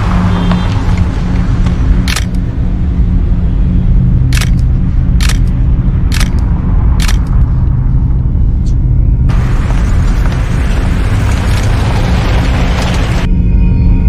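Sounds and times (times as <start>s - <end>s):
camera shutter firing: 4.4s - 5.5s, 6.1s - 6.4s.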